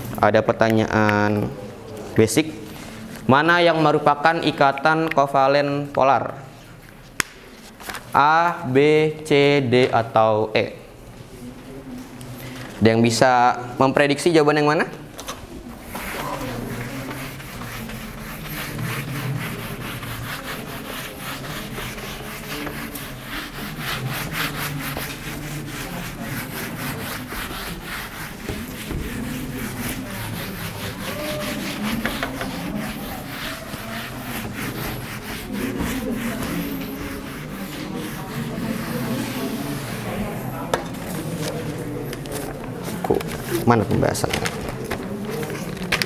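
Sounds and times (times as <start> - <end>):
eraser scrubbing whiteboard: 15.7 - 43.7.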